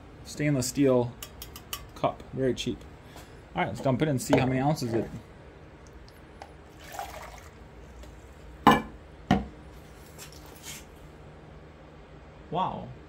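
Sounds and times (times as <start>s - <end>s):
coffee pouring into a cup: 6.7s - 7.6s
objects knocking on wooden bench: 8.7s - 9.6s.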